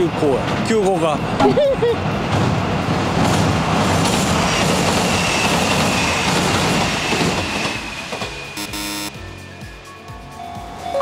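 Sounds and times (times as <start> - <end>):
train wheels rumbling on bridge: 0.0 - 8.6
thin high tone: 7.8 - 9.5.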